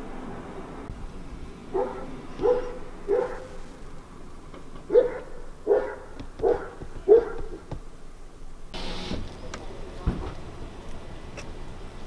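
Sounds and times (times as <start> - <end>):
dog barking: 1.7 - 3.6, 4.9 - 7.6.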